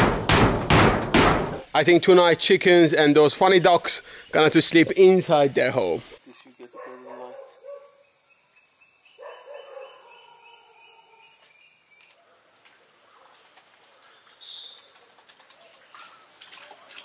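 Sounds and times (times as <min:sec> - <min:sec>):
outdoor ambience: 0:00.0 - 0:17.0
crickets trilling: 0:06.2 - 0:12.2.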